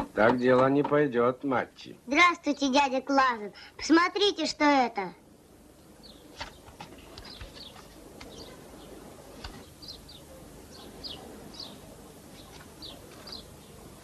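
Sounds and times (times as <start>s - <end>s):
small birds chirping: 5.8s - 14.0s.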